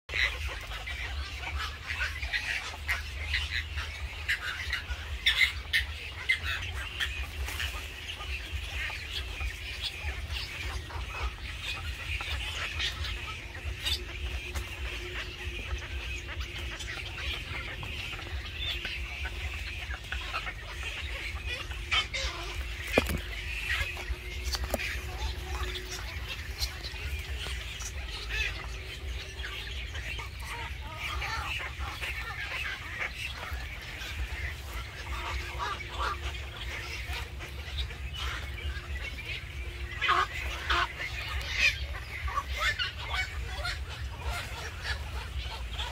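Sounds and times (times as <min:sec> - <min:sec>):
birds calling and chirping: 0:00.1 - 0:45.9
steady low rumble: 0:00.1 - 0:45.9.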